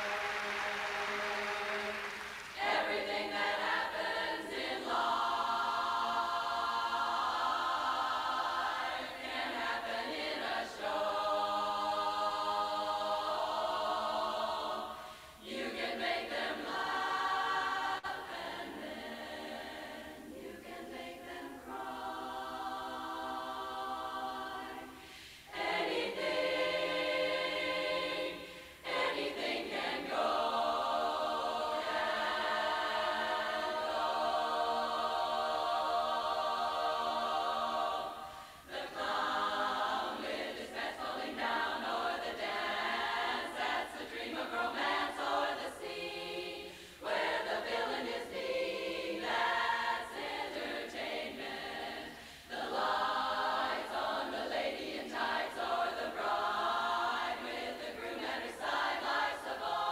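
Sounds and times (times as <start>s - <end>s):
women's chorus singing a cappella: 0.0s - 59.9s.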